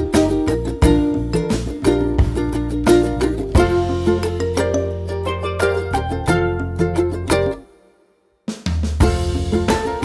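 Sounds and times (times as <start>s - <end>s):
background music with drums: 0.0s - 6.4s, 8.5s - 10.0s
heavy drum hit: 0.9s - 4.2s, 8.6s - 10.0s.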